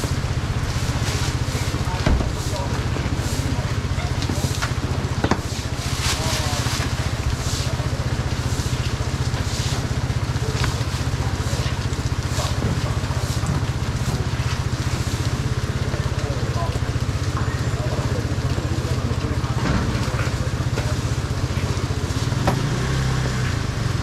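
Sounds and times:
engine idling: 0.0s - 24.0s
rain hissing: 0.0s - 24.0s.

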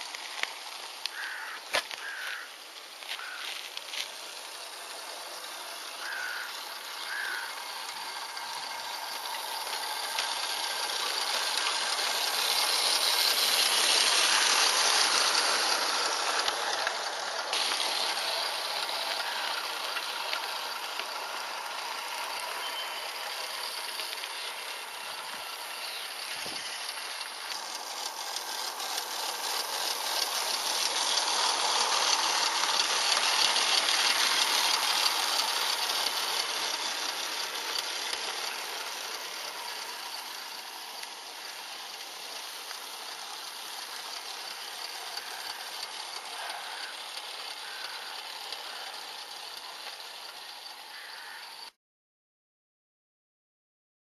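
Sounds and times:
steam locomotive hissing and ticking: 0.0s - 51.7s
wheels clicking on track: 0.0s - 51.7s.

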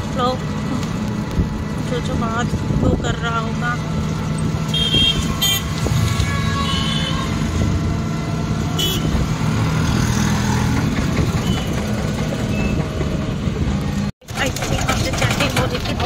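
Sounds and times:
road and traffic noise: 0.0s - 16.0s
horn toots: 4.7s - 7.4s, 8.8s - 9.2s.

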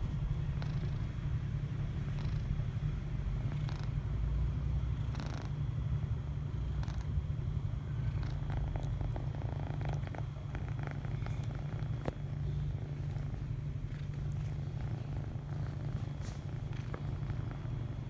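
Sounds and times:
kitten purring: 0.0s - 18.0s
faint rustles of fur and fabric: 8.2s - 18.0s.

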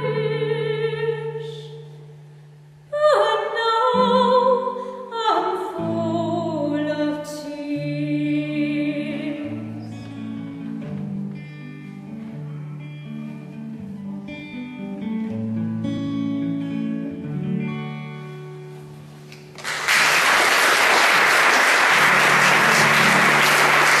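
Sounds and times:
acoustic guitar chords: 0.0s - 19.6s, 21.1s - 24.0s
loud applause: 19.5s - 24.0s.

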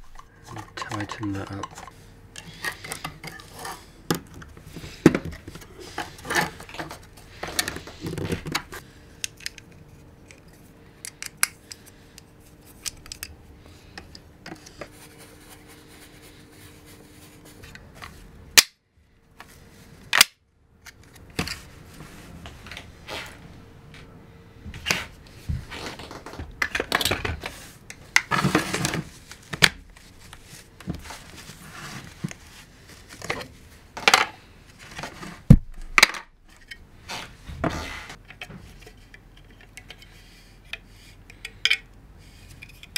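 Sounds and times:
plastic parts clicking and tapping: 0.0s - 3.4s.

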